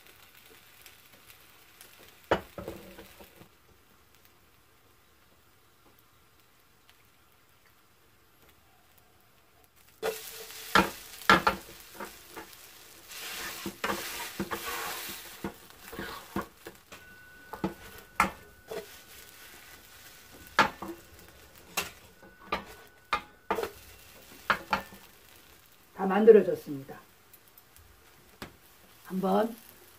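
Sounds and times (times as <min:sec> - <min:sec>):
pancake sizzling in oil: 0:00.0 - 0:29.9
metal spatula scraping pan: 0:10.0 - 0:25.1.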